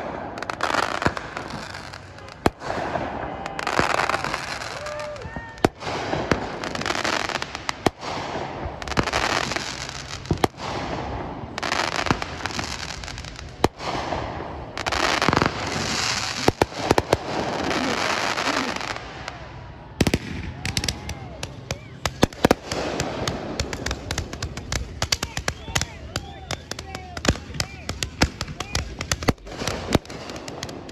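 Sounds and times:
firework bangs: 0.0 - 30.9
firework crackling: 0.0 - 30.9
rapid firework pops: 5.6 - 19.0, 20.0 - 30.9.

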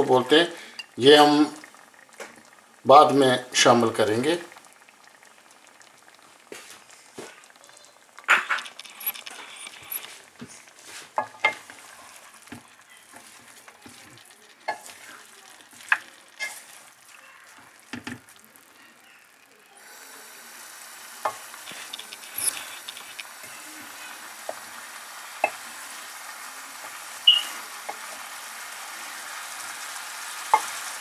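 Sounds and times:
meat sizzling: 0.0 - 31.0
metal spatula scraping a pan: 15.8 - 16.9.

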